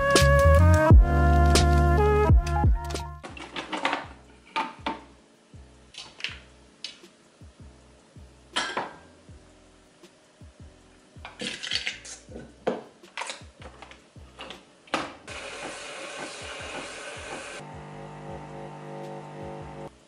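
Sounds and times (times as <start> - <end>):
cups clinking on counter: 8.6 - 9.0
coffee machine whirring: 14.4 - 20.0.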